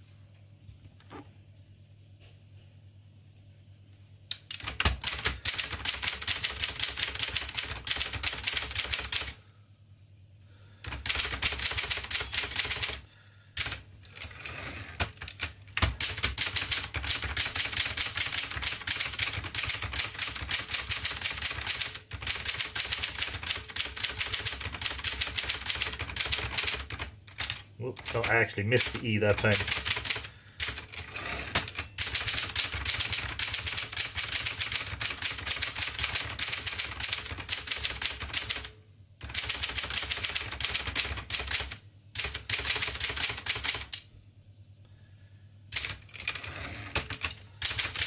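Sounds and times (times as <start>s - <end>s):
typewriter carriage return: 4.4s - 9.3s, 10.9s - 13.0s, 13.6s - 43.9s, 45.8s - 48.0s
typewriter keys clacking: 4.4s - 9.3s, 10.9s - 13.0s, 15.0s - 43.9s, 45.8s - 48.0s.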